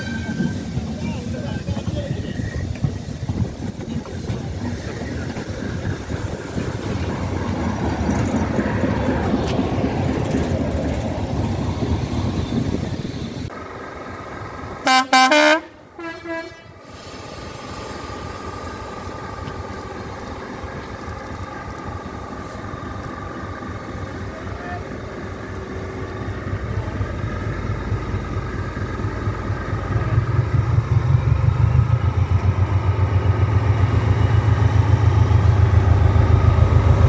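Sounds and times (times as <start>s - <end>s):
locomotive humming: 0.0s - 37.0s
railway coaches rumbling past: 0.0s - 37.0s
locomotive horn blasts: 14.8s - 16.8s.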